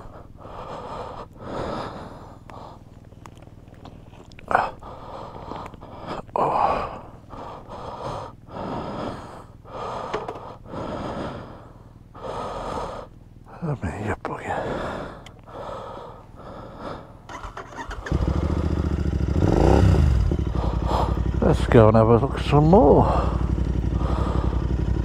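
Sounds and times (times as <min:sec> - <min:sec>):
person breathing: 0:00.0 - 0:03.0, 0:03.8 - 0:13.2, 0:14.4 - 0:17.4, 0:20.2 - 0:21.4, 0:23.0 - 0:25.0.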